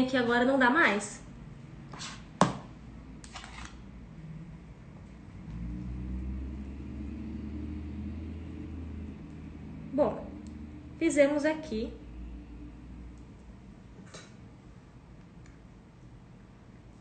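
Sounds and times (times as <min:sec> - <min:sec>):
low steady hum: 0:00.0 - 0:17.0
spatula scraping through filling: 0:03.2 - 0:03.8.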